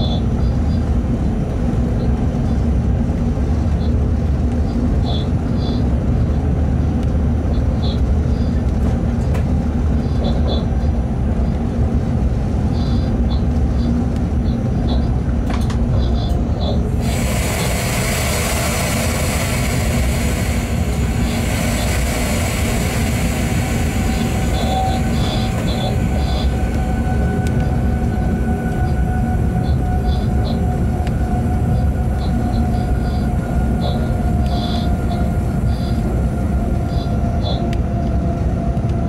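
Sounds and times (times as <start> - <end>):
train rumbling on track: 0.0 - 39.0
loud steady hiss: 16.9 - 27.2.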